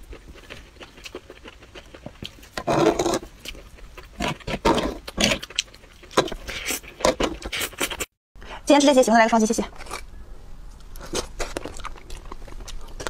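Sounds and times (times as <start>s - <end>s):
wet chewing: 0.0s - 8.1s, 10.8s - 13.0s.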